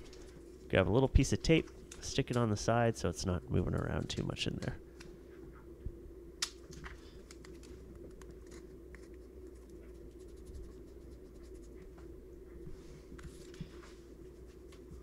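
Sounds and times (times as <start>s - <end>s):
steady low hum: 0.0s - 15.0s
faint scratching and clicks: 3.6s - 5.1s, 7.2s - 12.1s.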